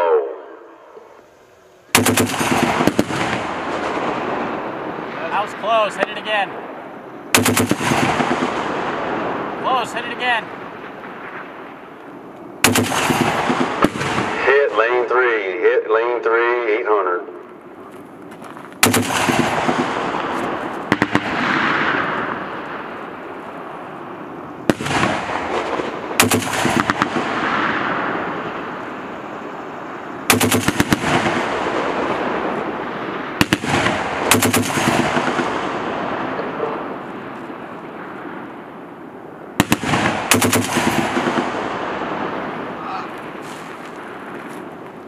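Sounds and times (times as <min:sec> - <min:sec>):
rolling echo: 0:00.0 - 0:45.0
machine gun firing bursts: 0:02.0 - 0:04.0, 0:07.4 - 0:08.7, 0:12.6 - 0:14.4, 0:18.8 - 0:20.1, 0:24.7 - 0:27.4, 0:30.3 - 0:31.9, 0:33.4 - 0:35.6, 0:39.6 - 0:41.7.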